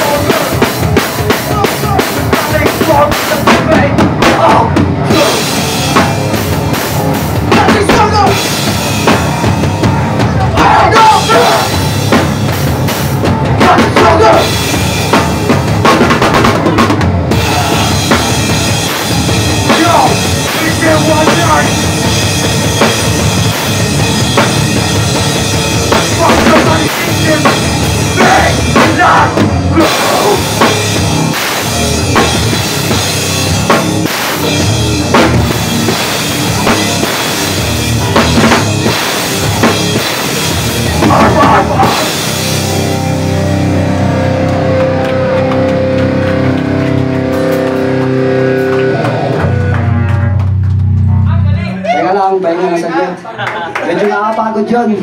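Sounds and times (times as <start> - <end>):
drum kit: 0.0 - 52.0
electric guitars: 0.0 - 52.0
bass guitar: 0.0 - 52.2.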